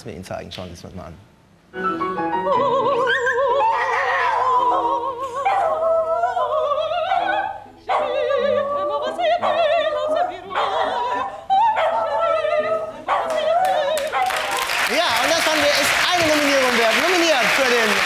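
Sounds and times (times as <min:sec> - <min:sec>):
woman singing soprano: 0:01.8 - 0:14.6
dog howling: 0:03.6 - 0:04.8.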